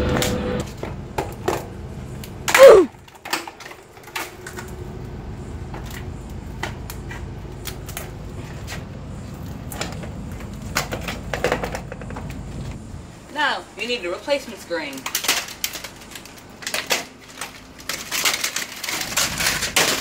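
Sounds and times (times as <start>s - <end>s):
shattered glass clicking and crackling: 14.9s - 20.0s
laptop screen crashing onto brick: 16.7s - 20.0s.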